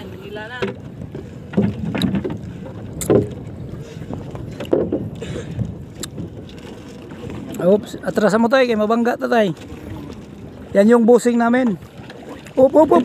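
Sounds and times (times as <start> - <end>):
water noise: 0.0 - 13.0
wind: 0.0 - 13.0
knocks on wooden hull: 0.5 - 3.5, 4.5 - 5.1.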